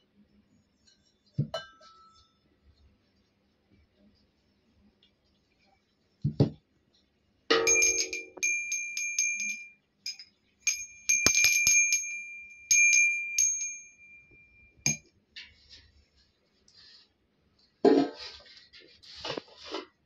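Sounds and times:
low metallic clang: 7.5s - 8.6s
brass hand bell ringing: 7.5s - 15.0s.

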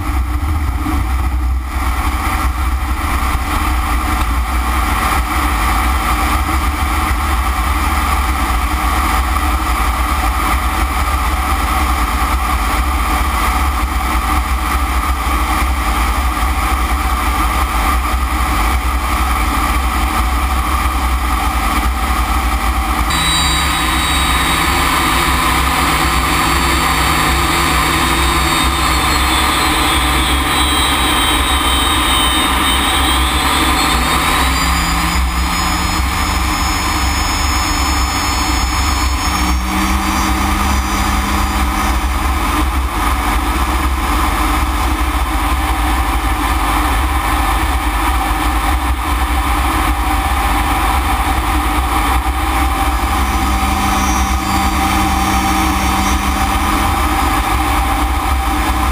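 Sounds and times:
low hum: 0.0s - 9.4s, 23.1s - 46.5s, 50.3s - 58.9s
high whine: 0.0s - 12.8s, 22.9s - 58.9s
jet engine running: 22.9s - 58.9s.

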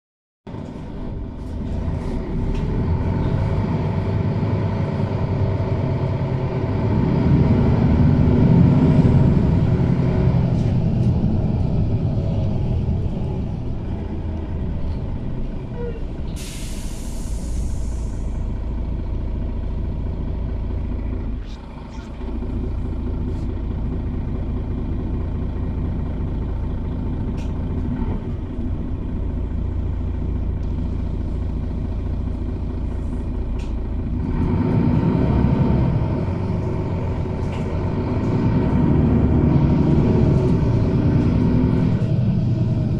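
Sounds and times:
bus engine running: 0.5s - 42.9s
compressed air hiss: 16.4s - 18.4s.

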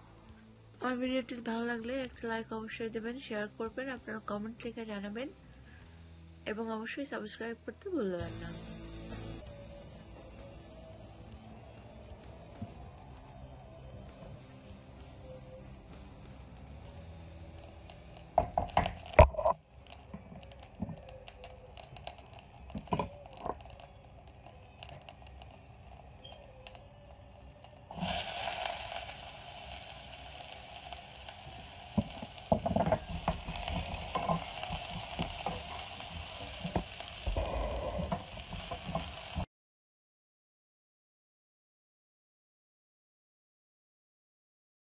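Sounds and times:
onions sizzling in oil: 8.2s - 39.5s
light crackles: 9.4s - 39.5s.

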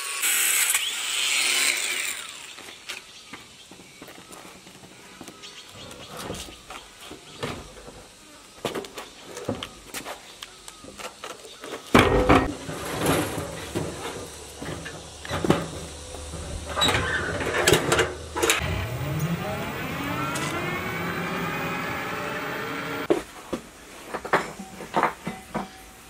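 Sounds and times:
motor tricycle engine revving: 12.4s - 23.1s.

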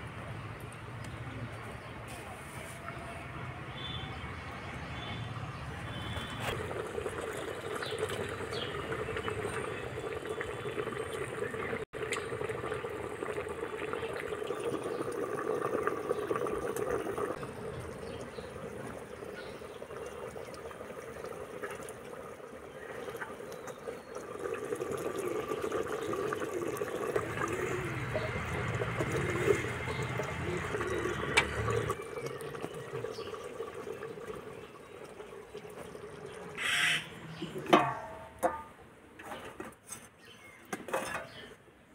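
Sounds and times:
liquid bubbling in a pot: 5.9s - 36.6s, 37.3s - 39.3s.

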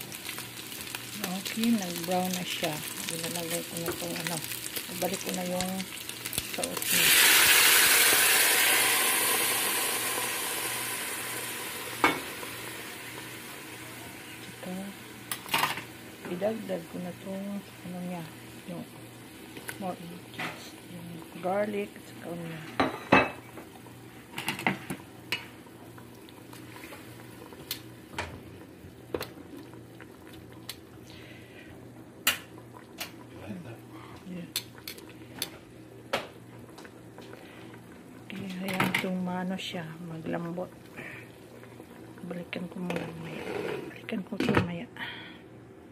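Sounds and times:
meat sizzling in a frying pan: 0.0s - 31.6s
sauce pouring: 5.8s - 14.0s.

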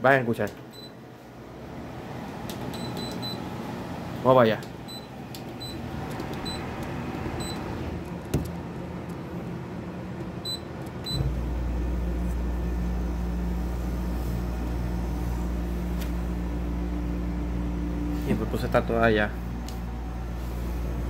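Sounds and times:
dehumidifier humming: 0.0s - 21.0s
control panel beeping: 2.7s - 3.4s, 6.4s - 6.7s, 7.4s - 7.6s.

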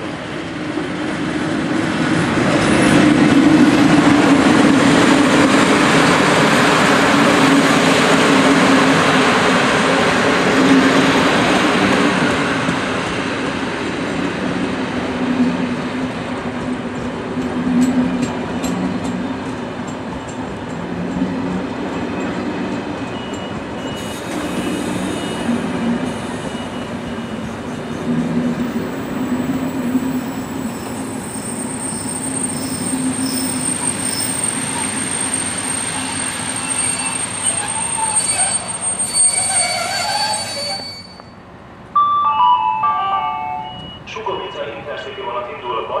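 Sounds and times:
low rumble of trains: 0.0s - 46.0s
high squealing tones: 30.0s - 41.4s.

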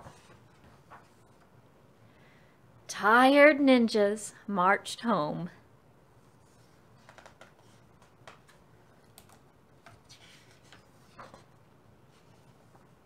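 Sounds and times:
book page turning: 6.4s - 11.5s.

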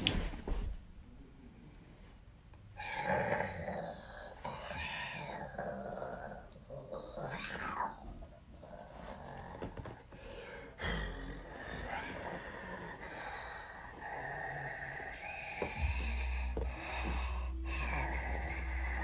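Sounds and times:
low rumble: 14.9s - 19.0s.

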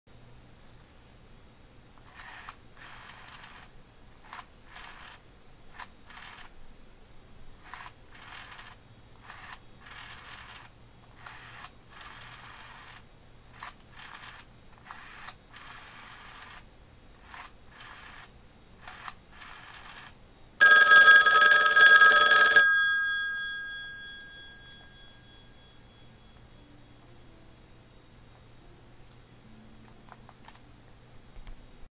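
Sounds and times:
faint background noise: 0.1s - 31.9s
telephone bell ringing: 20.6s - 28.8s.

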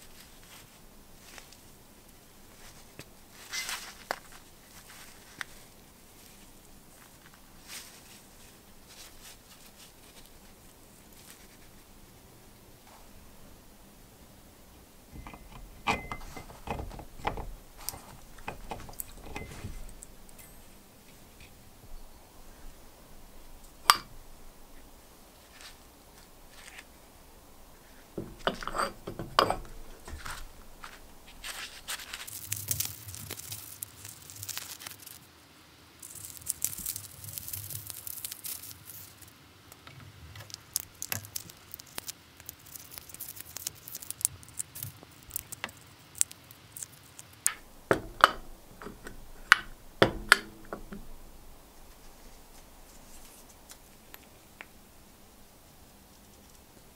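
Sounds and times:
masking tape crackling: 14.6s - 56.9s
metal parts knocking on wood: 15.1s - 20.7s, 28.2s - 31.0s, 47.5s - 51.1s.

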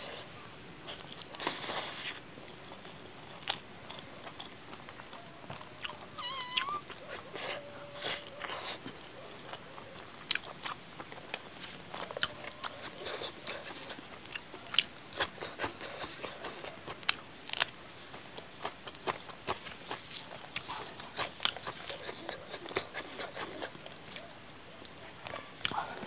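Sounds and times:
chewing and mouth clicks: 0.9s - 26.0s
wavering animal call: 6.0s - 8.8s.

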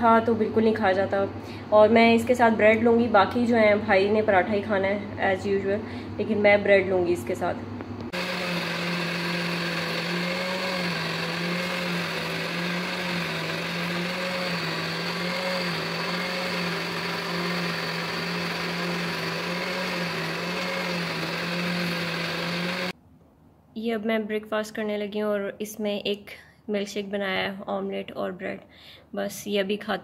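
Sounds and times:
electric blender running: 8.1s - 23.0s.

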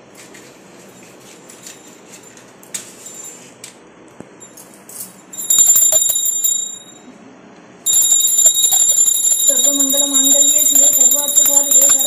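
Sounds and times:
hand bell rung rapidly: 5.4s - 7.0s, 7.9s - 12.0s.

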